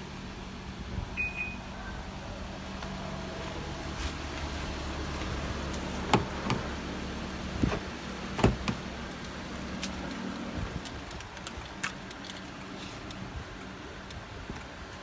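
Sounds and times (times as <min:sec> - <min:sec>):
car engine idling: 0:00.0 - 0:15.0
car door knocking open: 0:08.4 - 0:08.8.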